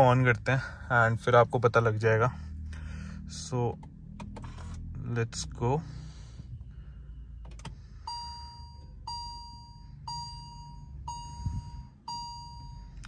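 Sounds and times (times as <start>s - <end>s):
ignition click: 7.4s - 8.2s.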